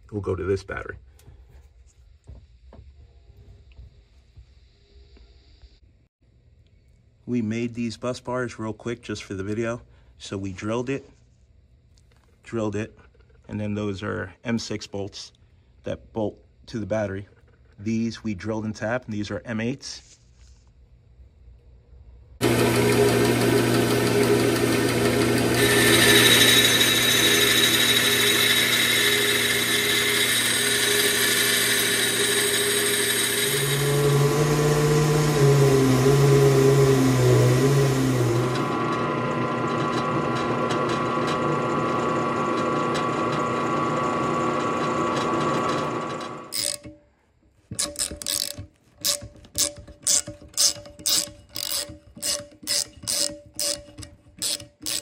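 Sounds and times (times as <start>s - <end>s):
bandsaw cutting metal: 22.4s - 46.9s, 47.7s - 55.0s
drill press drilling metal: 22.4s - 46.9s, 47.8s - 55.0s.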